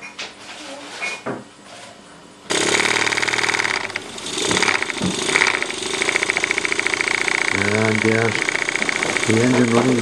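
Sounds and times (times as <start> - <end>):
steam engine running fast: 2.5 - 10.0.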